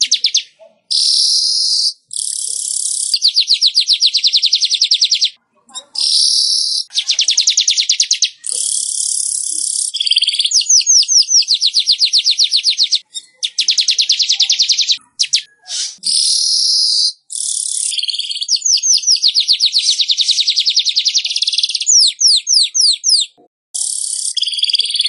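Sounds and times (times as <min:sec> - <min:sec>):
bird chattering song: 0:00.0 - 0:25.0
bird wheezy hissing phrases: 0:14.5 - 0:16.5.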